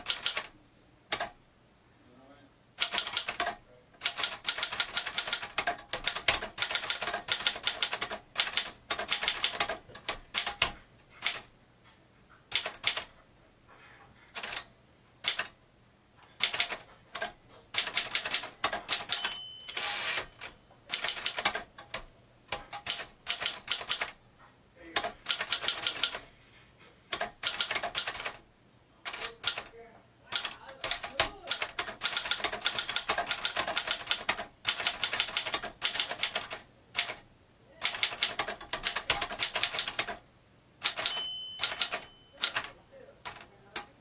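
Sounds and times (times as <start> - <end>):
typewriter carriage return clatter: 2.8 - 11.5, 16.4 - 24.2, 25.0 - 26.2, 27.1 - 28.4, 30.4 - 37.2, 37.8 - 40.2, 40.8 - 43.5
typewriter bell ring: 18.9 - 21.4, 40.8 - 42.8
typewriter key clacks: 40.8 - 42.7.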